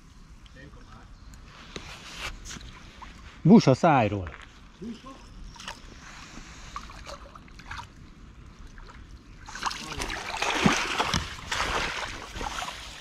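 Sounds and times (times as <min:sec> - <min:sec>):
water streaming off landing net: 0:09.4 - 0:13.0.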